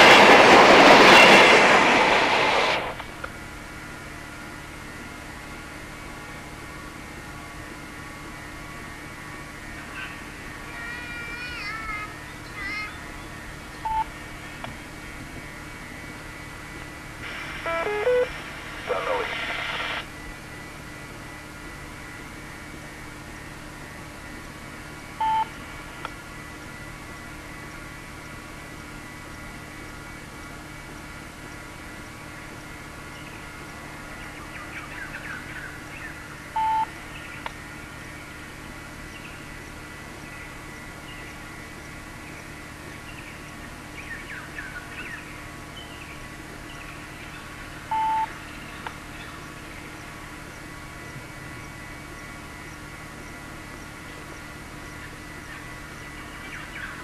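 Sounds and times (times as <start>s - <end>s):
steady hiss and hum: 0.0s - 57.0s
small birds chirping: 9.9s - 14.6s
short loud beeps: 17.6s - 18.3s.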